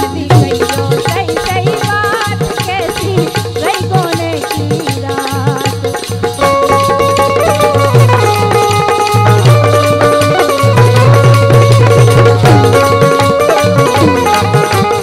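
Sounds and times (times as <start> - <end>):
steady drum rhythm: 0.0 - 15.0
melody instrument playing held notes: 6.6 - 15.0.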